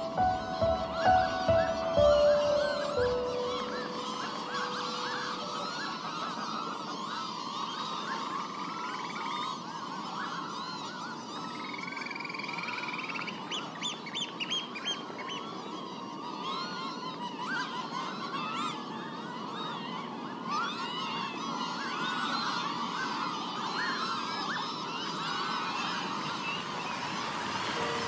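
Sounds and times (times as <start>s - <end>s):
birds chorus: 0.0s - 28.0s.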